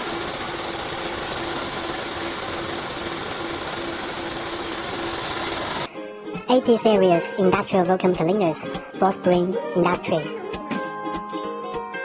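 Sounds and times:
vacuum cleaner sucking sawdust: 0:00.0 - 0:05.9.

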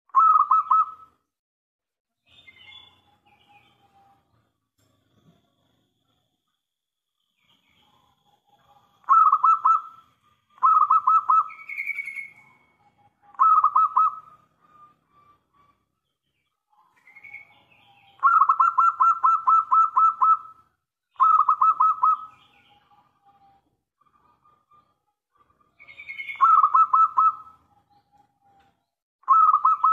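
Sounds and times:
dove cooing: 0:00.2 - 0:01.1, 0:08.5 - 0:15.8, 0:16.8 - 0:28.6, 0:29.2 - 0:29.9.

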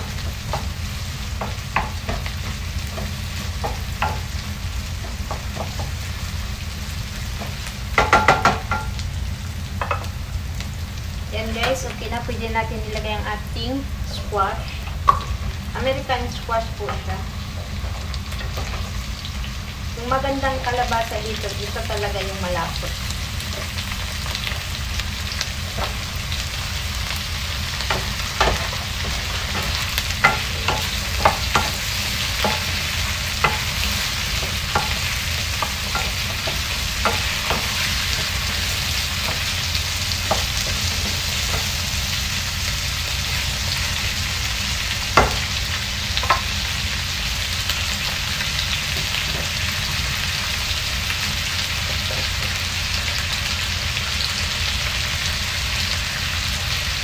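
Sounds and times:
squash sizzling in a wok: 0:00.0 - 0:57.0
wooden spatula knocking on pan: 0:01.4 - 0:04.4, 0:05.0 - 0:06.0, 0:07.4 - 0:09.0, 0:27.8 - 0:32.8, 0:35.6 - 0:38.2, 0:45.2 - 0:45.5.

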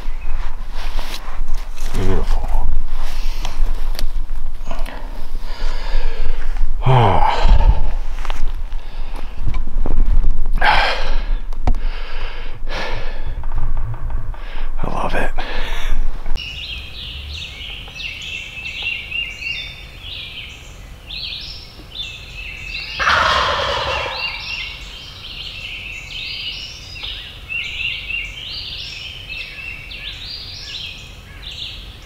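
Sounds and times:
songbirds chirping: 0:00.0 - 0:10.0, 0:10.7 - 0:32.0
turkey gobbling: 0:23.0 - 0:24.8.

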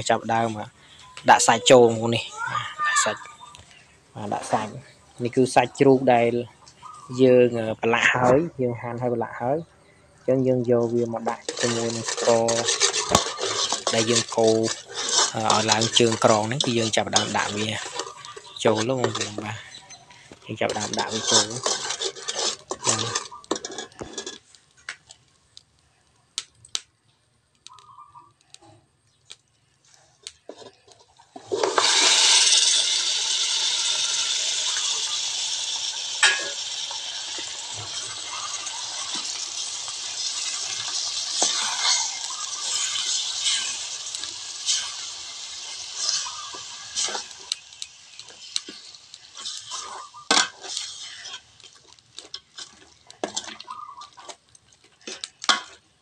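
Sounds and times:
pork sizzling in hot caramel: 0:00.0 - 0:08.4, 0:09.0 - 0:56.0
ladle scraping pot: 0:10.8 - 0:24.4, 0:30.4 - 0:54.4.

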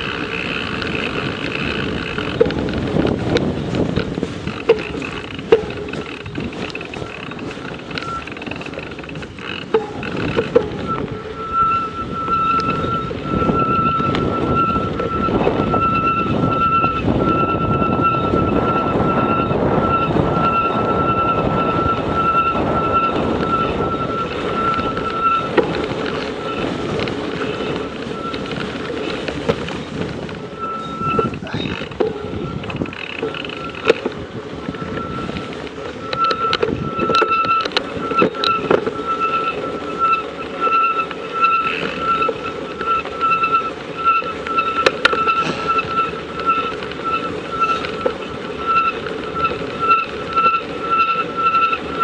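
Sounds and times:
rumble of wind and tyres: 0:00.0 - 0:52.0
thin high whine pulsing: 0:00.0 - 0:52.0.

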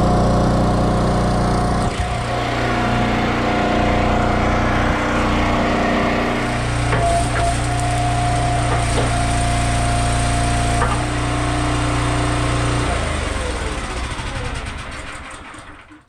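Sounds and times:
small gasoline engine running: 0:00.0 - 0:16.0
wooden knocks: 0:08.6 - 0:09.4, 0:10.8 - 0:11.1.

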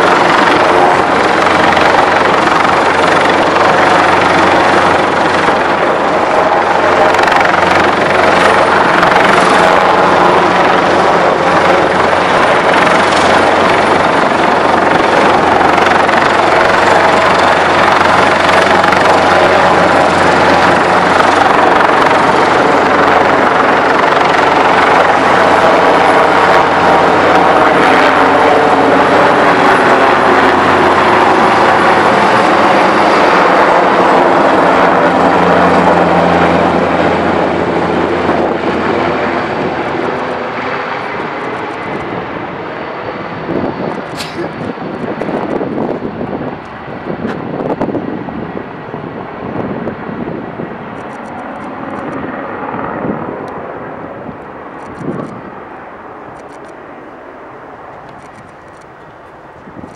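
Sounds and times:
helicopter flying overhead: 0:00.0 - 0:59.9.

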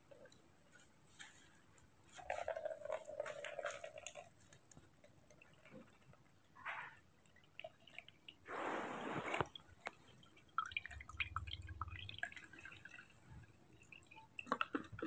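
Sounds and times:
juice trickling into cup: 0:00.0 - 0:06.6, 0:07.3 - 0:15.0.

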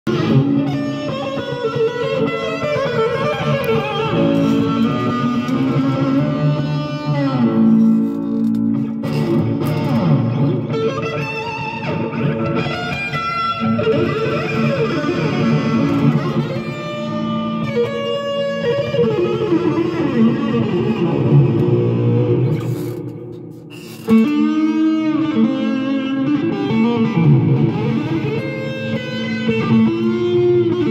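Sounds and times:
plucked long-necked lute: 0:00.1 - 0:10.8.

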